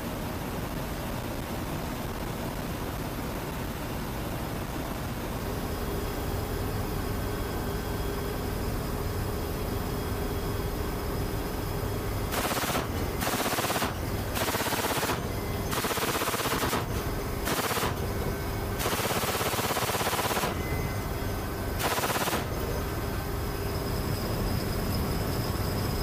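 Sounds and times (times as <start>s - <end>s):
aircraft engine drone: 0.0s - 26.0s
machine gun bursts: 12.3s - 18.0s, 18.8s - 20.6s, 21.8s - 22.5s.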